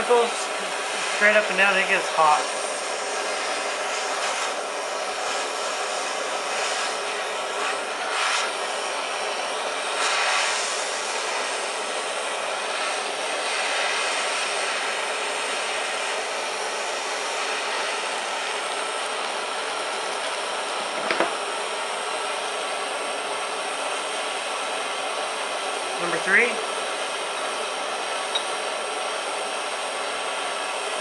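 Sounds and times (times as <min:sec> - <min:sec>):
gas torch flame hissing: 0:00.0 - 0:22.7.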